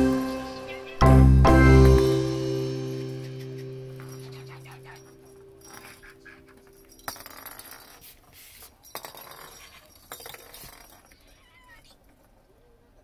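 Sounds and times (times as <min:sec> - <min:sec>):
plastic toy ball clattering on wood: 0:04.0 - 0:12.5.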